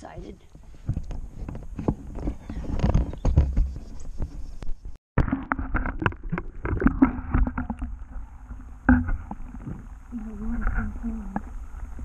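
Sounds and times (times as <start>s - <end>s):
muffled underwater sloshing: 5.2s - 12.0s.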